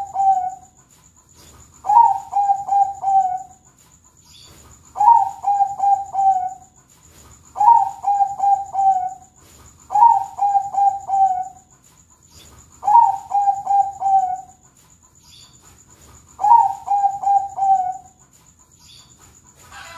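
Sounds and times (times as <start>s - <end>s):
dove cooing: 0.0s - 0.8s, 1.8s - 3.6s, 4.5s - 6.8s, 7.5s - 11.7s, 12.4s - 14.6s, 16.0s - 18.2s.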